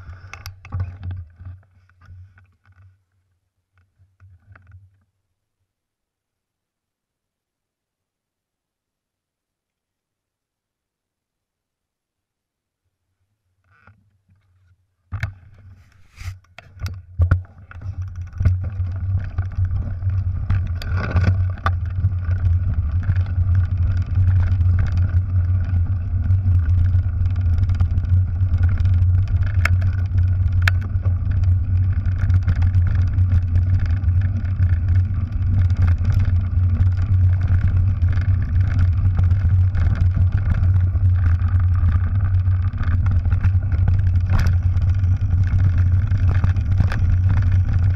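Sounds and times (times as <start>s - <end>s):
bike tyre noise on gravel: 15.3s - 47.9s.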